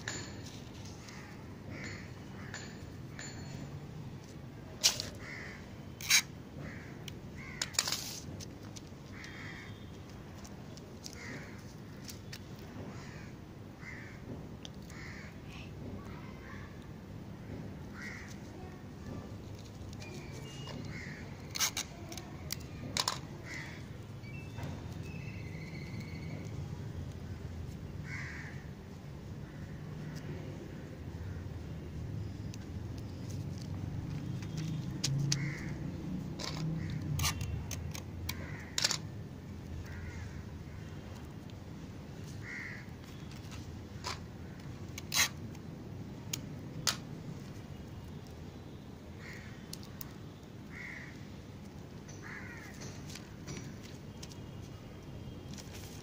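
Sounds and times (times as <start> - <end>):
crow cawing: 5.2 - 5.7, 6.6 - 7.8, 9.1 - 9.9, 11.1 - 11.6, 12.9 - 14.2, 14.9 - 15.4, 18.0 - 18.4, 20.8 - 21.3, 23.4 - 23.9, 28.0 - 28.7, 35.3 - 37.0, 38.3 - 39.0, 39.8 - 40.5, 42.4 - 43.2, 49.2 - 49.7, 50.7 - 51.3, 52.1 - 52.9.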